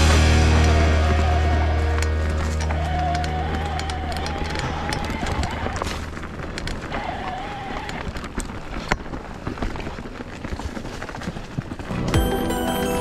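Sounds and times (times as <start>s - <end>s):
music: 0.0s - 3.8s, 11.9s - 13.0s
bike tyres rolling on dirt: 0.0s - 13.0s
bike clicks and knocks: 1.6s - 12.2s.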